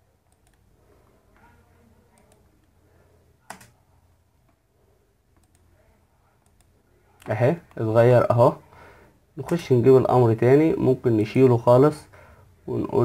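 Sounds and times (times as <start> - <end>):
low room hum: 0.0 - 13.0
computer mouse click: 0.2 - 0.6, 2.2 - 2.5, 3.5 - 3.8, 5.3 - 5.7, 6.4 - 7.8.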